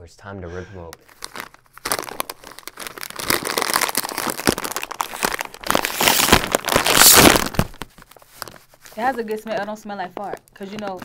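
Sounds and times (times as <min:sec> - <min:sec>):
bag tearing open: 0:01.0 - 0:09.3
snack bag crinkling: 0:01.0 - 0:11.0.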